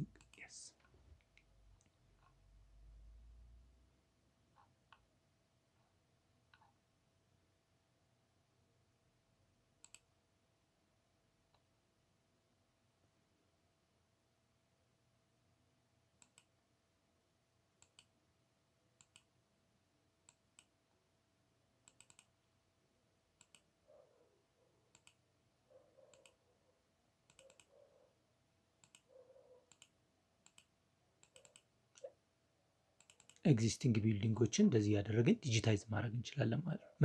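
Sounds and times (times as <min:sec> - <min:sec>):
faint computer mouse clicks: 0:09.8 - 0:10.1, 0:16.2 - 0:16.5, 0:17.8 - 0:18.1, 0:19.0 - 0:19.3, 0:21.8 - 0:22.3, 0:23.4 - 0:23.7, 0:24.9 - 0:25.2, 0:26.0 - 0:26.4, 0:27.3 - 0:27.8, 0:28.8 - 0:32.1, 0:33.0 - 0:33.4.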